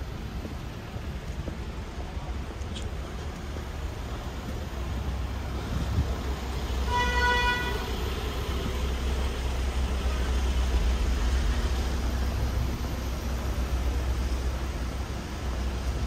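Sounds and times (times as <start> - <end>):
city street traffic: 0.0 - 16.0
car horn toot: 6.8 - 7.9.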